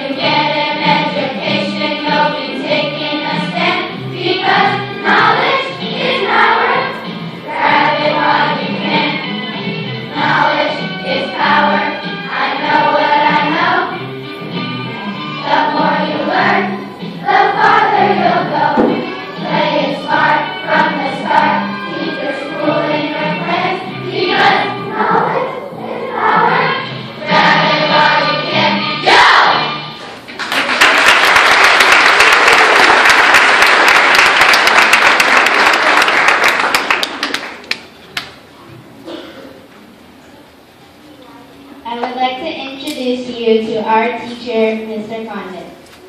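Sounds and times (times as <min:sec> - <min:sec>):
children's choir singing: 0:00.0 - 0:37.6
audience applause: 0:30.3 - 0:37.9.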